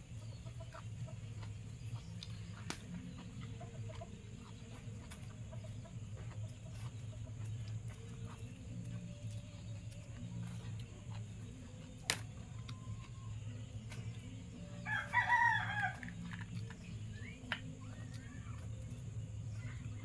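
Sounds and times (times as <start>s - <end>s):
steady low hum: 0.0s - 20.0s
rooster crowing: 14.8s - 16.3s.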